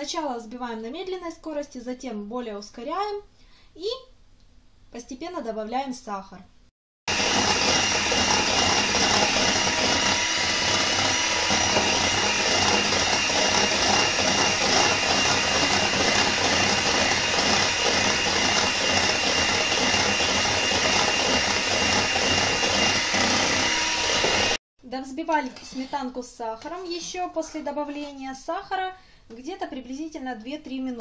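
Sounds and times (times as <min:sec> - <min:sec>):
electric hand mixer running: 0:07.1 - 0:24.6.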